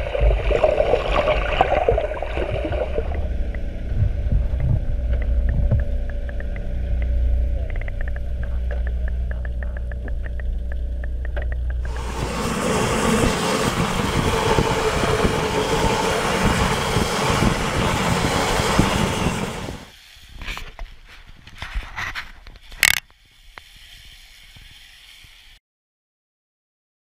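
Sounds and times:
electric brush tool whirring: 11.9 - 18.2.

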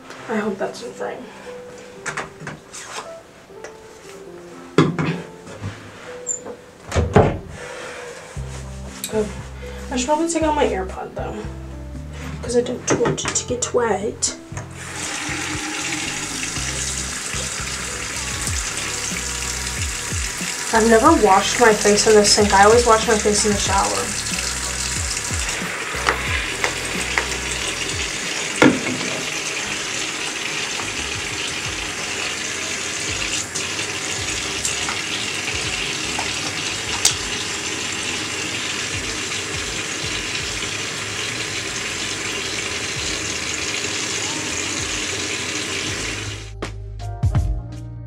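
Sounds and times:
faucet running into sink: 14.7 - 46.4.

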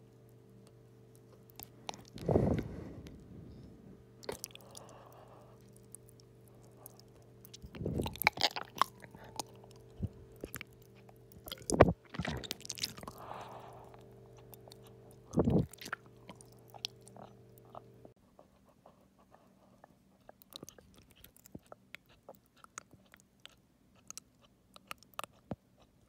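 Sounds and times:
faint steady hum: 0.0 - 26.0
gulping thuds: 11.5 - 13.0, 15.3 - 16.0.

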